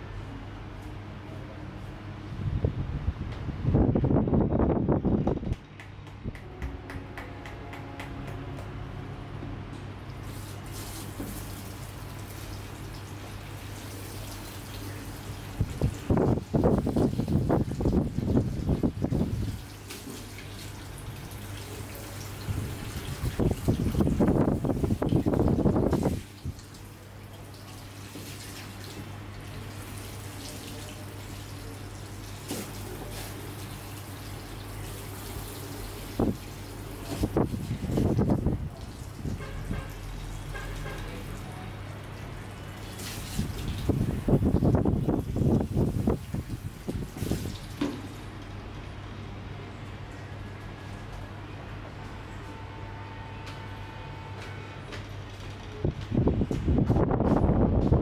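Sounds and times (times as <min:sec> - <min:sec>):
steady low hum: 0:00.0 - 0:10.8
shower sprayer water running: 0:09.7 - 0:48.9
shower head spraying water: 0:10.1 - 0:20.8, 0:43.0 - 0:47.8.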